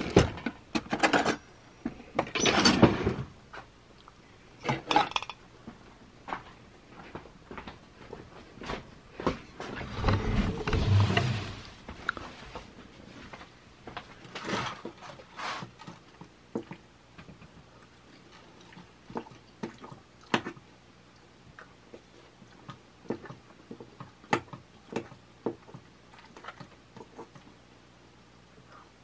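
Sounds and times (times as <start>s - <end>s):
quiet chewing: 15.9s - 27.6s.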